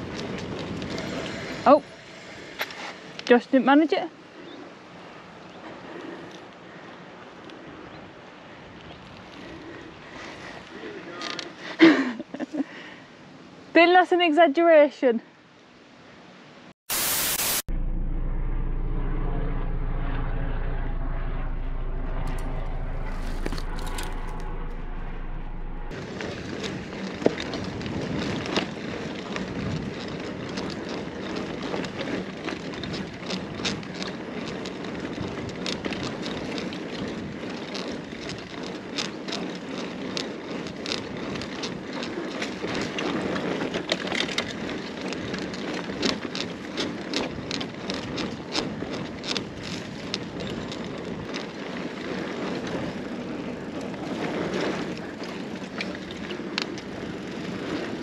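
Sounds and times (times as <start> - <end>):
wind noise: 0.0 - 3.3, 17.7 - 38.8
bike rattles and clicks: 0.0 - 3.8, 8.7 - 12.8, 23.1 - 24.4, 25.9 - 58.0
bike tyres rolling: 0.0 - 12.9, 25.9 - 58.0.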